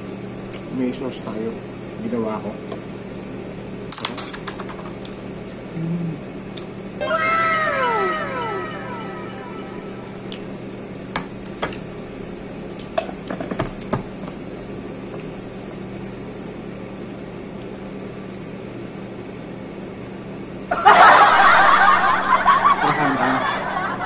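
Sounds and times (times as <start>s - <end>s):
low room hum: 0.0s - 24.0s.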